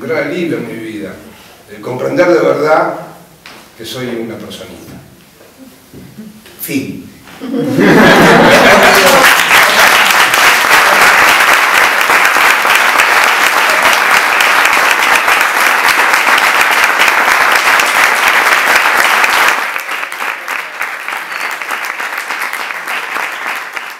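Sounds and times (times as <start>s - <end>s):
audience applauding: 7.8s - 23.9s.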